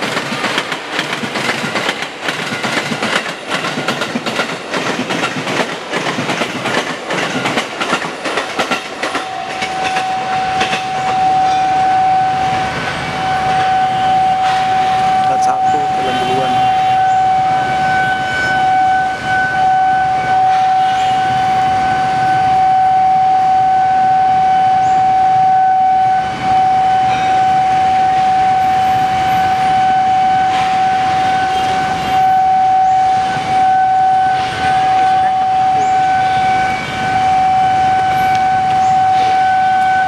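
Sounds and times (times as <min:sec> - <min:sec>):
trains rumbling on tracks: 0:00.0 - 0:40.0
level crossing alarm tone: 0:08.6 - 0:40.0.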